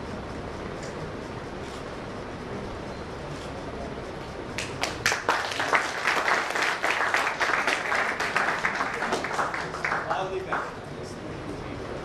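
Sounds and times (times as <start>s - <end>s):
audience applauding: 4.6s - 10.8s.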